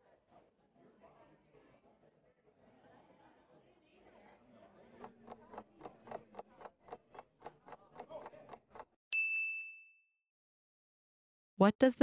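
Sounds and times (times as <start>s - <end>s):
stopwatch ticking quickly: 5.0s - 9.0s
bell ding: 9.1s - 10.2s.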